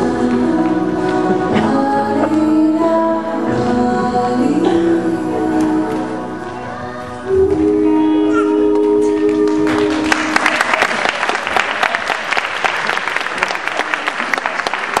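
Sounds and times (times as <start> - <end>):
dance music: 0.0 - 10.6
audience applause: 9.3 - 15.0.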